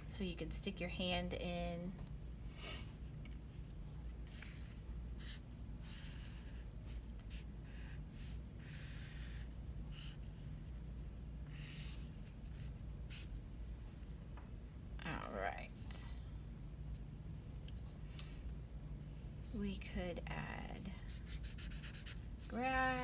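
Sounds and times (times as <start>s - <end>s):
steady low hum: 0.0s - 23.0s
marker scratching on paper: 4.3s - 13.3s, 20.8s - 23.0s.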